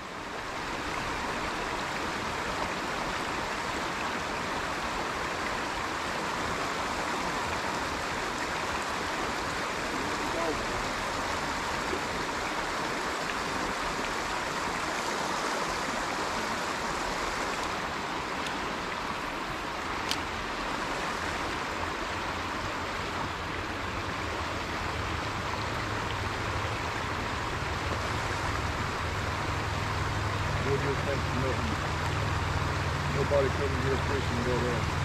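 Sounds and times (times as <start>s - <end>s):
steady rushing noise: 24.2s - 35.0s.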